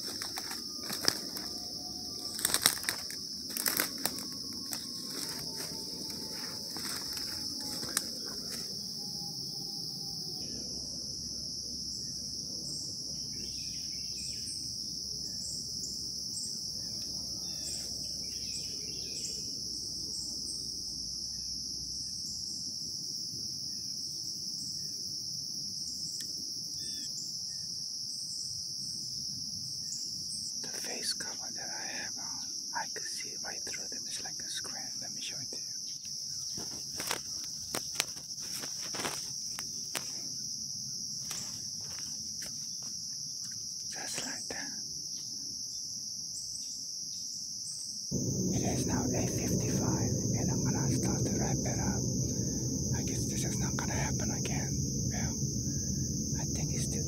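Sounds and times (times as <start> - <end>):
high-pitched drone: 0.0 - 10.2, 48.2 - 57.0
night insects chirping: 0.0 - 57.0.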